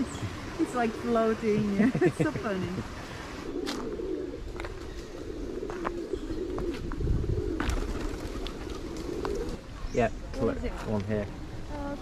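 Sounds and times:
low wavering bird calls: 2.2s - 10.7s.

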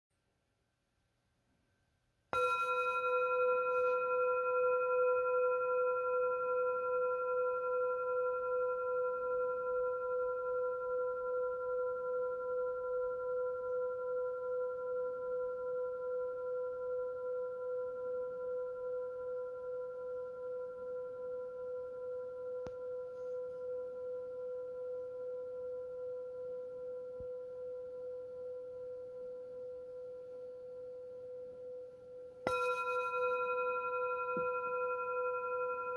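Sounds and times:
metal singing bowl ringing: 2.4s - 35.9s.

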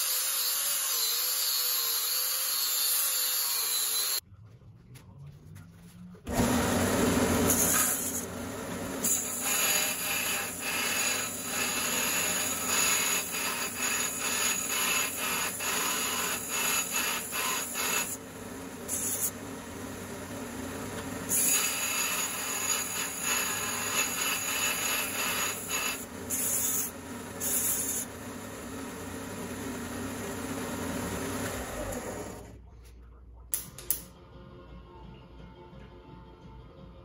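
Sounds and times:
belt grinder running: 6.3s - 19.4s, 21.2s - 32.4s.

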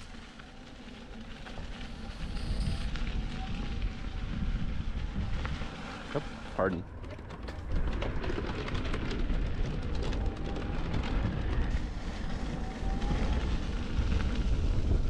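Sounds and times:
electric unicycle rolling rumble: 0.0s - 15.0s
wind buffeting microphone: 0.0s - 15.0s
wheel ticking over wooden planks: 5.3s - 14.4s.

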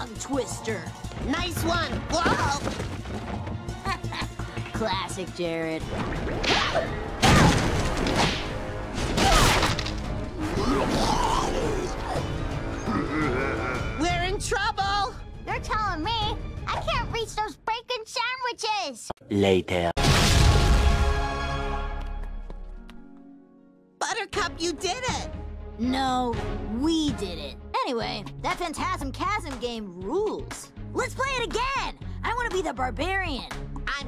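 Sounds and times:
action music score: 0.0s - 17.8s, 20.0s - 23.3s
cartoon crash impacts: 20.0s - 21.1s.

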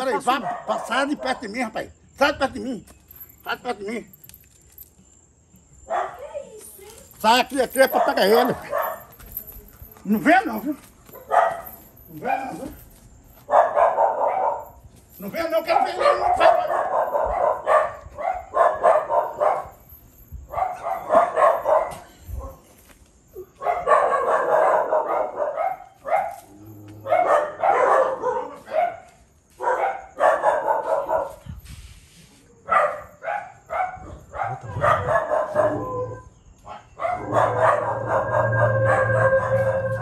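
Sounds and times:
dog barking: 0.1s - 1.6s, 5.9s - 6.3s, 7.8s - 9.1s, 11.2s - 12.8s, 13.5s - 14.8s, 15.7s - 19.8s, 20.5s - 22.6s, 23.5s - 31.4s, 32.6s - 40.0s.

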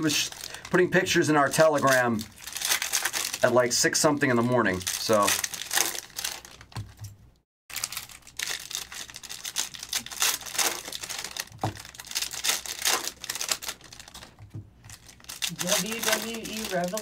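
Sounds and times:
foil wrappers crinkling and tearing: 0.0s - 7.0s, 7.7s - 17.0s.

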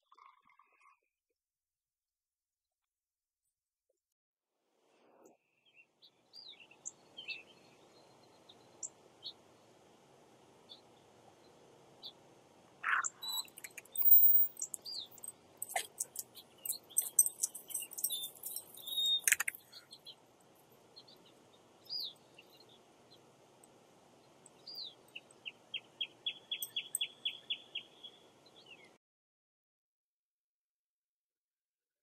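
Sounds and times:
small birds chirping: 0.0s - 1.0s, 5.2s - 29.0s
bird trill: 12.8s - 20.2s, 24.5s - 28.9s.

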